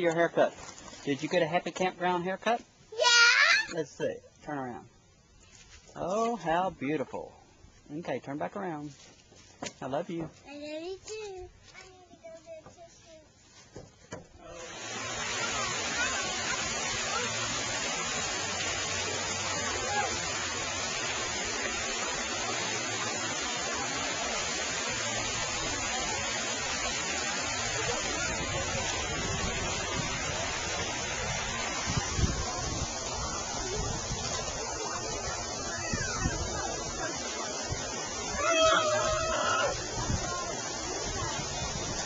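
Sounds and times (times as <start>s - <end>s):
splashing water: 0.0s - 1.4s, 14.4s - 42.0s
children's voices: 2.9s - 3.7s, 10.5s - 13.3s, 15.2s - 17.7s, 31.8s - 37.4s, 38.3s - 42.0s.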